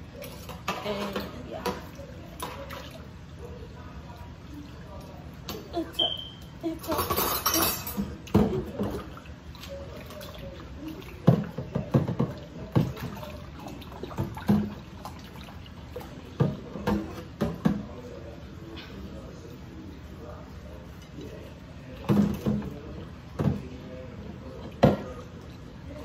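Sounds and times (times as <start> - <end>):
dishes and utensils clinking: 5.5 - 9.1
water running and dripping: 7.9 - 18.0.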